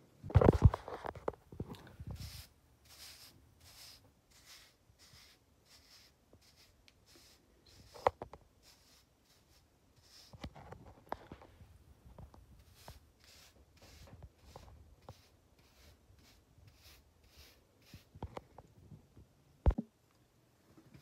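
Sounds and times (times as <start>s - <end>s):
hairbrush strokes on hair: 2.1s - 10.4s.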